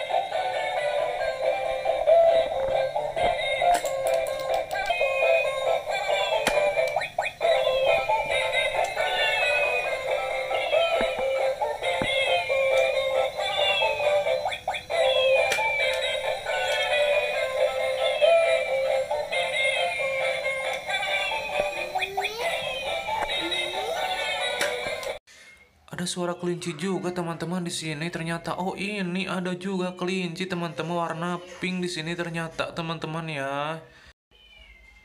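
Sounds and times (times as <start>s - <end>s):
tinny electronic toy melody: 0.0s - 25.2s
falling chirp: 34.3s - 35.0s.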